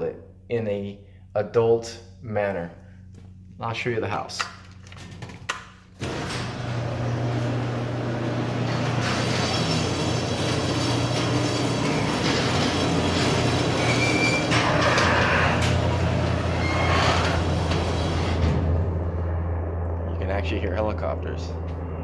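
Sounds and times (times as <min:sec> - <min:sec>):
door rollers rumbling and squeaking: 0:06.0 - 0:19.2
garage door opener motor humming: 0:06.0 - 0:19.2.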